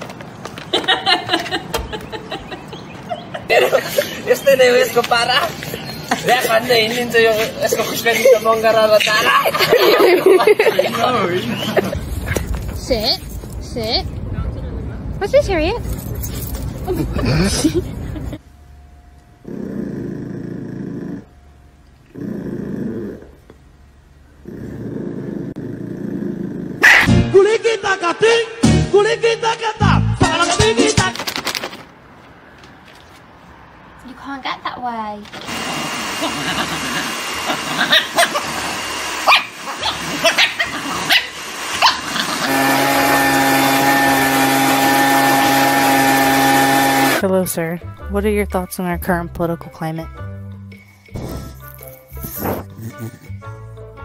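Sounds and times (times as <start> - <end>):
small dog growling: 19.4 - 21.4, 22.1 - 23.6, 24.4 - 27.1, 36.3 - 38.8, 39.6 - 42.5
small dog yipping: 26.8 - 27.1, 37.8 - 38.4, 39.2 - 42.1.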